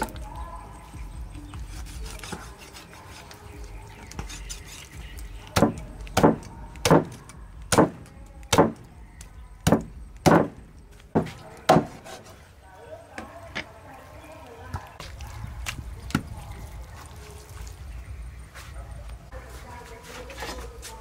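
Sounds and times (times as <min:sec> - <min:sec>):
cleaver chopping on wooden block: 0:05.6 - 0:08.9, 0:09.6 - 0:10.6, 0:11.2 - 0:12.2.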